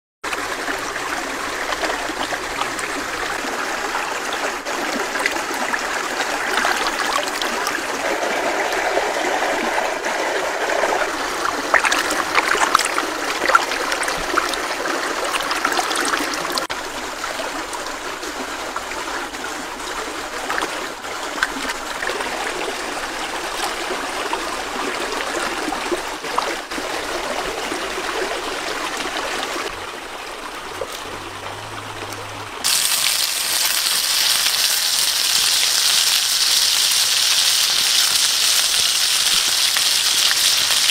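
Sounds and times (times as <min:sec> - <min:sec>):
stream trickling over rocks: 0:00.3 - 0:40.9
hands splashing in water: 0:08.7 - 0:14.6.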